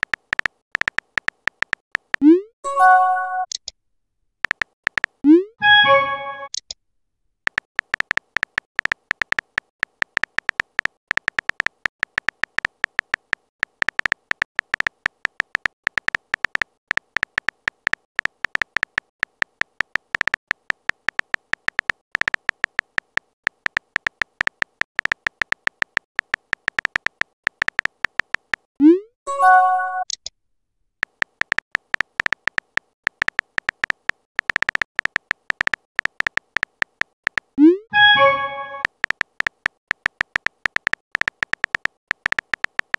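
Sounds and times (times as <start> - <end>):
short high typing beeps: 5.0 - 6.6, 37.6 - 39.2.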